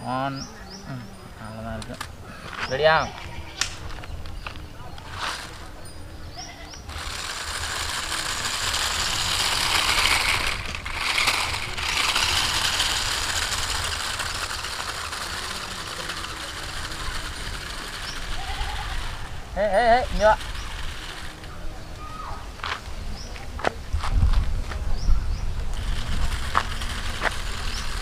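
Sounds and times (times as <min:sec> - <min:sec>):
toy car motor whirring: 0:05.0 - 0:05.8, 0:06.5 - 0:21.5, 0:25.8 - 0:28.0.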